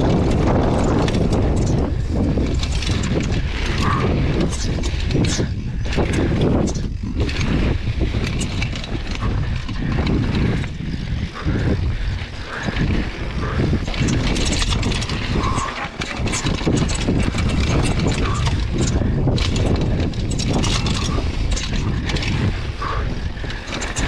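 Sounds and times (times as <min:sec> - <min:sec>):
bike rattling and knocking: 0:00.0 - 0:24.0
tyres rumbling on dirt: 0:00.0 - 0:24.0.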